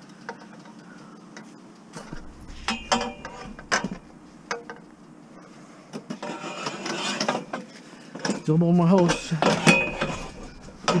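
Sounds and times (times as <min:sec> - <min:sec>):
metal rods clattering: 0:02.0 - 0:05.1, 0:08.3 - 0:11.0
sharp metallic clanks: 0:02.0 - 0:05.2, 0:08.3 - 0:11.0.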